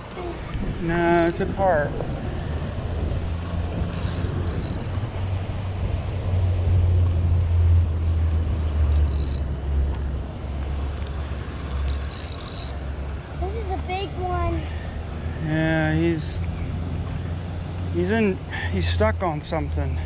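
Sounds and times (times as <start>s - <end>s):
spinning reel whirring: 1.0s - 1.4s, 3.8s - 5.4s, 8.0s - 13.6s.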